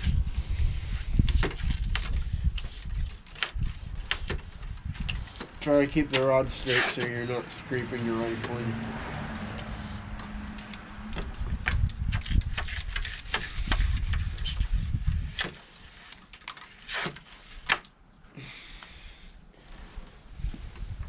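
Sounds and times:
wet squishes of sponge in barrel: 0:05.2 - 0:16.1.

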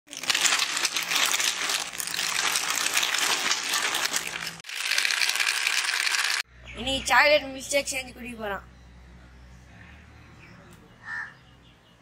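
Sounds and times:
chocolate balls pouring onto tray: 0:00.1 - 0:06.4
crinkling plastic wrappers: 0:00.1 - 0:06.4.

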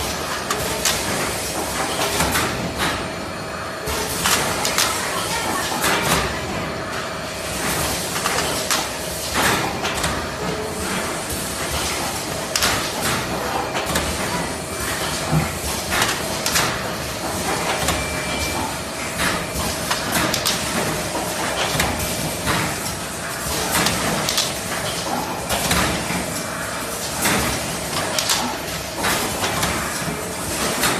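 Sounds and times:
machine clattering: 0:07.6 - 0:30.9
sharp mechanical clacks: 0:19.2 - 0:22.8, 0:23.6 - 0:26.1, 0:27.2 - 0:30.9.

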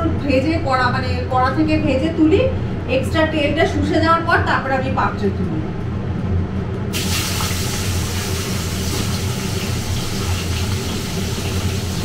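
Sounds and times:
steady low hum: 0:00.0 - 0:12.0
cauliflower sizzling in hot oil: 0:06.9 - 0:12.0.

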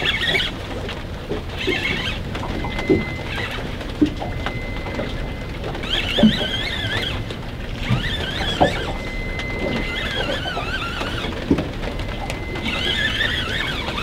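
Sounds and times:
fishing reel squealing: 0:00.0 - 0:00.6, 0:01.6 - 0:03.8, 0:04.4 - 0:14.0
low boat rumble: 0:00.0 - 0:14.0.

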